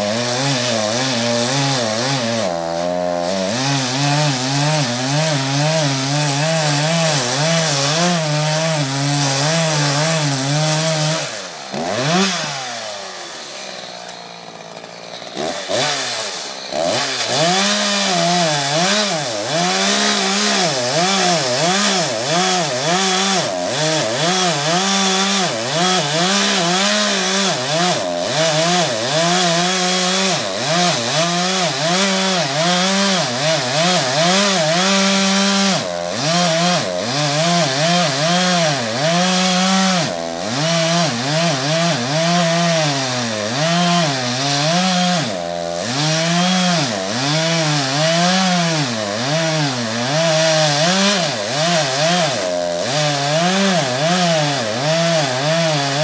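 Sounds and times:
chainsaw cutting wood: 0.0s - 56.0s.

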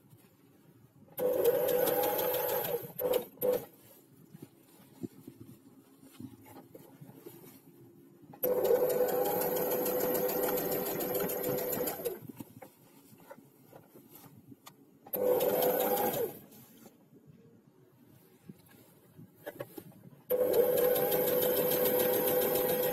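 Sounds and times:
sewing machine stitching: 1.2s - 3.7s, 8.4s - 12.2s, 15.1s - 16.4s, 20.3s - 22.9s
fabric handling: 3.4s - 8.0s, 11.2s - 14.7s.

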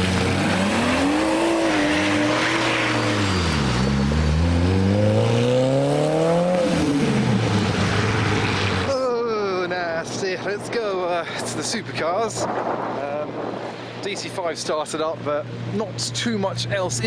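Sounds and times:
car engine accelerating hard: 0.0s - 8.9s.

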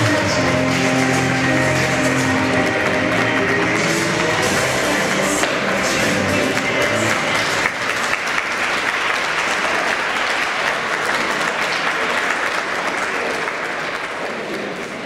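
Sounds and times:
music: 0.0s - 7.8s
audience applauding: 0.0s - 15.0s.

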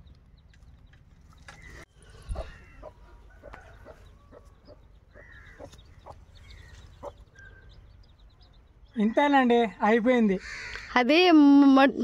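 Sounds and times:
hens clucking: 1.7s - 7.4s.

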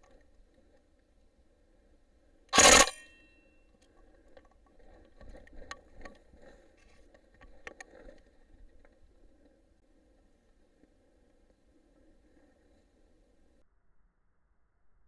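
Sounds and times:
small clicks: 2.5s - 3.2s
rifle shot: 2.6s - 3.2s.

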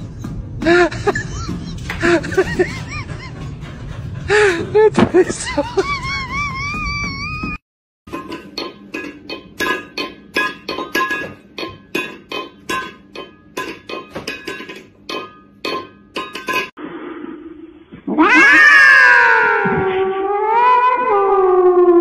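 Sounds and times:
metal bowl clanking on floor: 8.1s - 16.7s
cat yowling: 18.0s - 22.0s.

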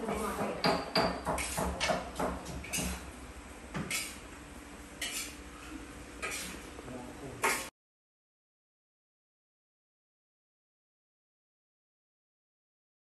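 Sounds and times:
dishes and utensils clinking: 5.0s - 5.4s, 6.2s - 6.6s, 7.4s - 7.7s.

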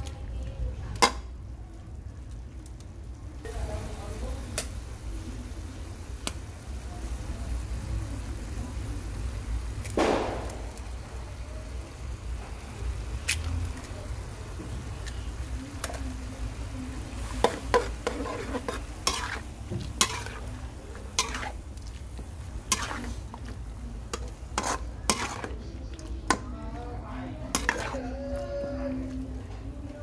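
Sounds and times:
light sizzle: 0.0s - 30.0s
spatula scraping a wok: 17.0s - 26.4s, 27.4s - 28.3s.

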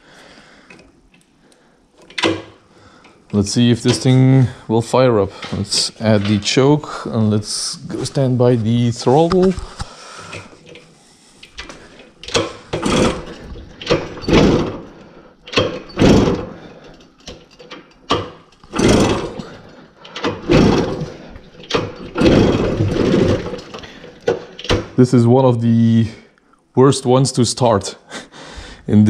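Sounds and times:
two-stroke engine failing to start: 12.2s - 17.0s, 18.7s - 24.5s.

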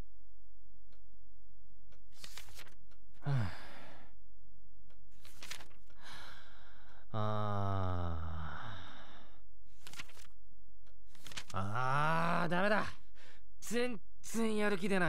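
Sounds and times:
man sighing and groaning: 3.2s - 4.1s, 6.0s - 9.4s, 11.5s - 13.3s.

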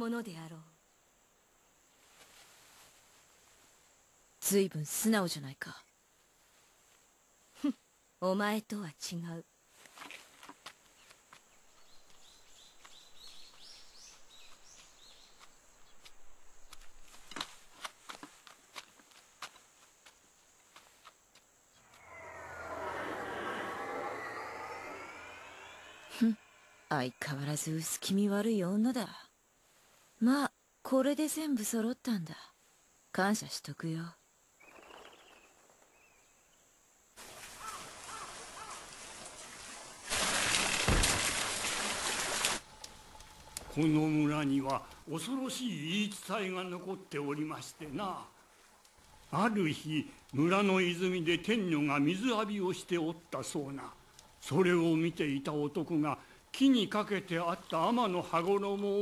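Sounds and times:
soft hiss: 0.0s - 34.6s
faint forest ambience: 0.0s - 59.0s.

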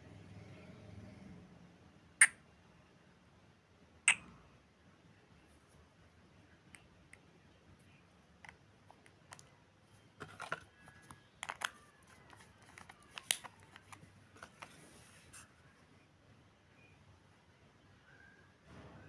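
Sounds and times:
plastic bottle cap clicks: 11.4s - 14.6s.

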